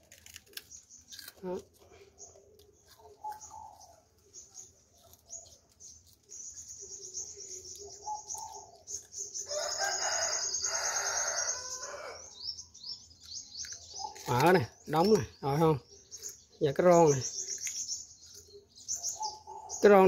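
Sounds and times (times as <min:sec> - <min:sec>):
rooster crowing: 0:09.5 - 0:12.3.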